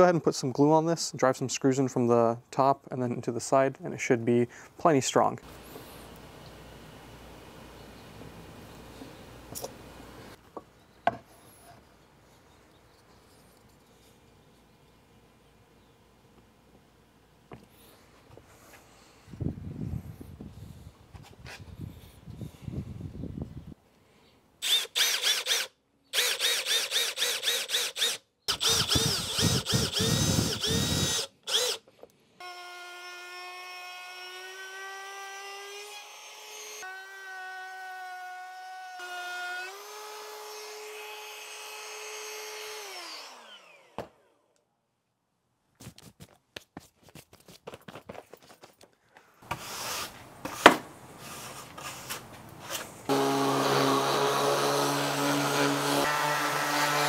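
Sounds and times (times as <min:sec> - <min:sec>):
taps on wood: 0:10.6 - 0:11.3
router running: 0:24.6 - 0:31.8, 0:53.1 - 0:57.0
drill driving screws into wood: 0:24.6 - 0:36.9, 0:49.4 - 0:57.0
brush sweeping sawdust: 0:51.2 - 0:53.0.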